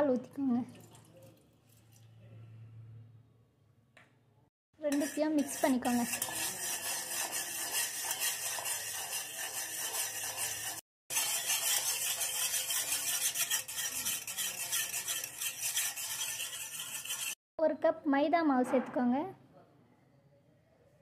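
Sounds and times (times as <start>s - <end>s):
wire whisk stirring in metal bowl: 4.8s - 17.4s.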